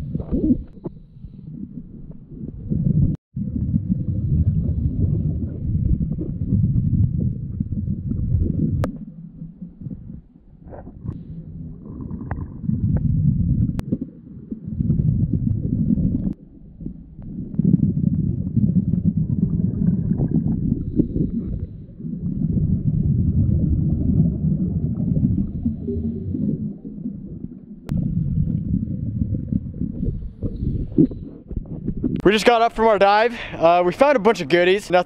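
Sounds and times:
underwater regulator bubbling: 0.0 - 32.3.

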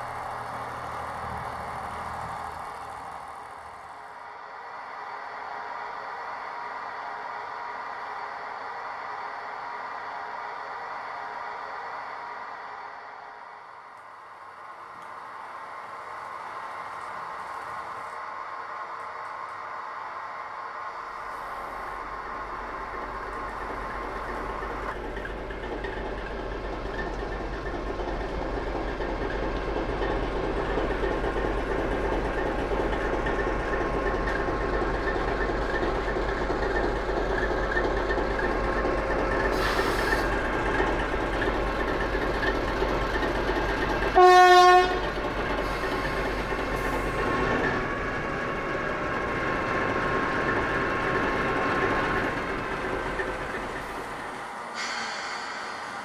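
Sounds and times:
locomotive horn blast: 44.2 - 45.1.

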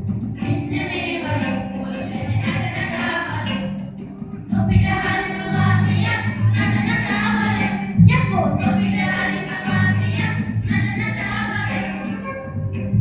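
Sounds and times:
choir singing with accompaniment: 0.0 - 13.0
steady bass notes: 0.0 - 13.0.

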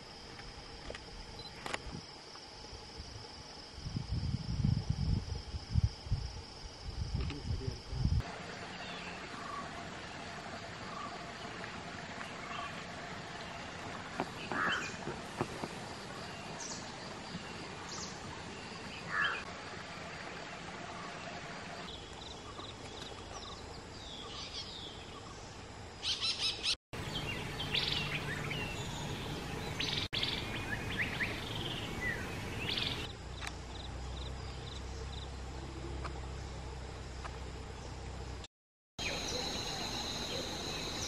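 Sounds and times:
outdoor background noise: 0.0 - 41.0
birds chirping and trilling: 14.4 - 15.0, 16.2 - 19.5, 21.9 - 33.1.

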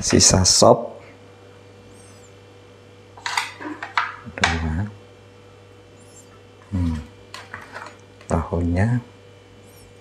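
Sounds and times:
electrical hum: 0.0 - 10.0
metal spoon scraping plates: 3.2 - 4.2, 7.4 - 8.0
man's voice murmuring: 6.7 - 7.1.

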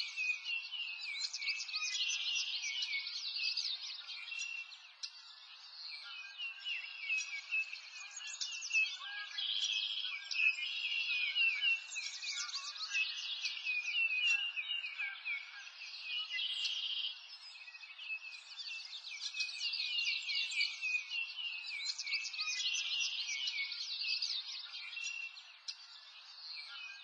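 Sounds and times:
small birds chirping: 0.0 - 27.0.

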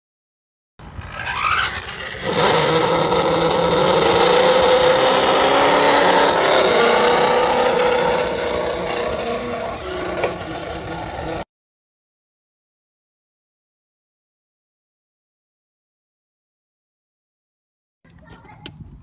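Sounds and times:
rc car motor whine: 0.8 - 11.4.

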